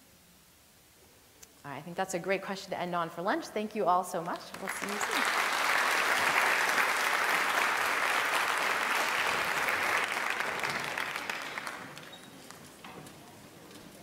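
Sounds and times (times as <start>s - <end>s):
audience applauding: 4.5s - 12.8s.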